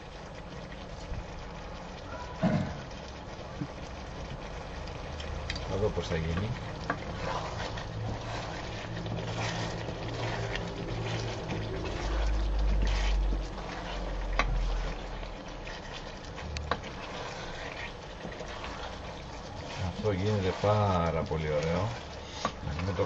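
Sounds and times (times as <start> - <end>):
potatoes sizzling in a frying pan: 0.0 - 23.0
low rumble: 6.4 - 20.0.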